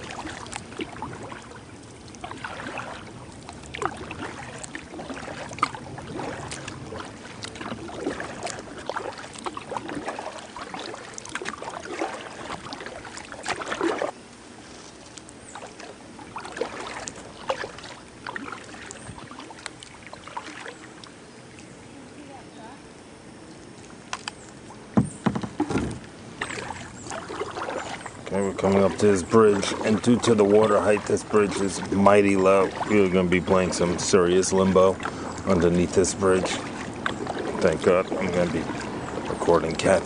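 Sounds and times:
water dripping: 0:00.0 - 0:14.2, 0:15.0 - 0:21.8, 0:23.5 - 0:40.0
paddle splashing in water: 0:00.0 - 0:22.4, 0:23.5 - 0:40.0
paddle knocking against boat: 0:24.9 - 0:32.0, 0:32.6 - 0:40.0.

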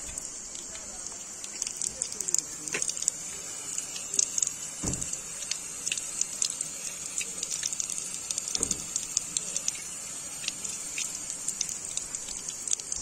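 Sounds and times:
dull thump: 0:04.8 - 0:05.2.

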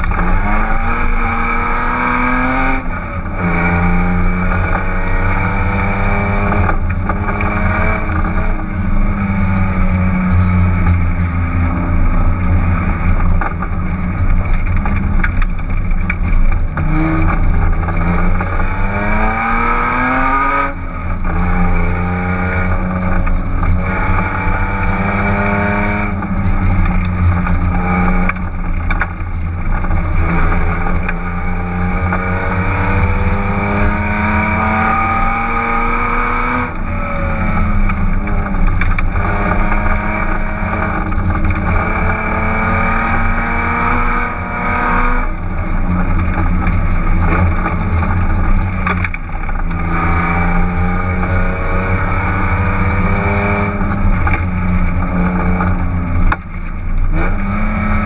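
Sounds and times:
loud car engine accelerating: 0:00.0 - 0:58.0.

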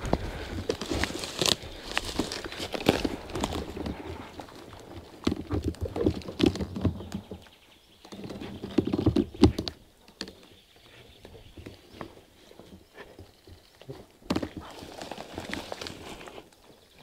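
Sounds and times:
footsteps through undergrowth: 0:00.0 - 0:07.4, 0:11.5 - 0:17.0
twigs snapping: 0:00.0 - 0:07.5.

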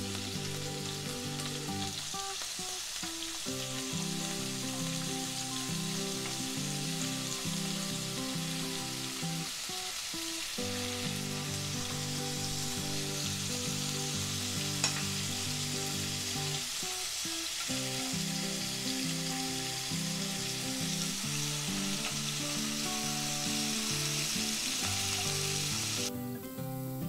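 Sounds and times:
food sizzling in oil: 0:00.0 - 0:26.1
soft background music: 0:00.0 - 0:27.0.

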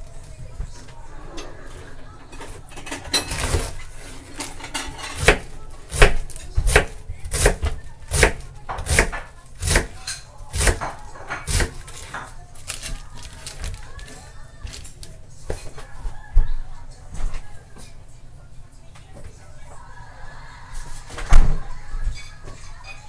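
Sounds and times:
knife shredding cabbage: 0:03.3 - 0:15.1.

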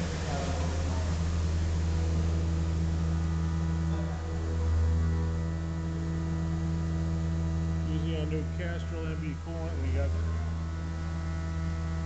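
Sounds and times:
coolant spraying hiss: 0:00.0 - 0:10.2
milling machine humming: 0:00.0 - 0:12.0.

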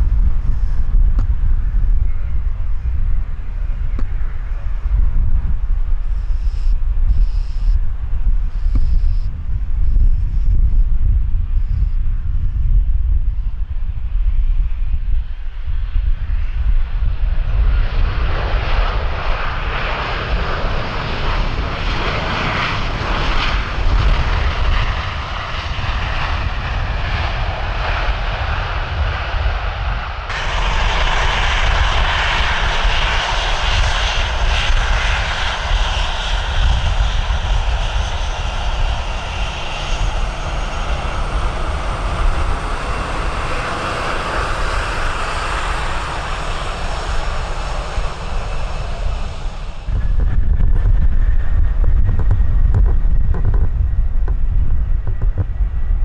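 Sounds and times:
jet engines running loud: 0:00.0 - 0:56.0.

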